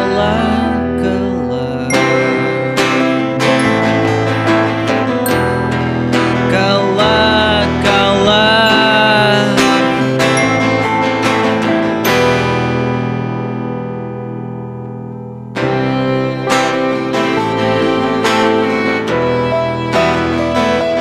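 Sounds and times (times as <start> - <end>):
guitar and piano song: 0.0 - 21.0
ringing chord: 1.8 - 20.5
full band playing: 1.9 - 13.0, 15.6 - 21.0.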